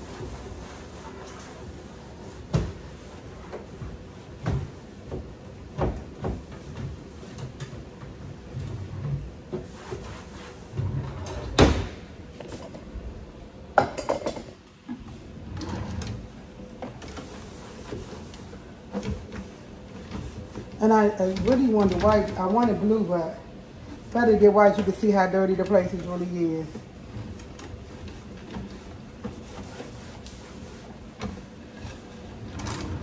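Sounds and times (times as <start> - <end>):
cloth rubbing: 0.0 - 4.9, 9.2 - 10.8, 23.7 - 33.0
drawer sliding: 10.7 - 12.9, 15.0 - 18.4, 31.2 - 33.0.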